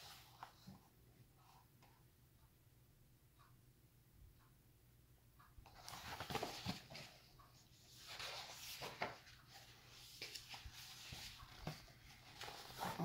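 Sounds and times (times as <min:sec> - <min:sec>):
book pages rustling: 0:05.6 - 0:13.0.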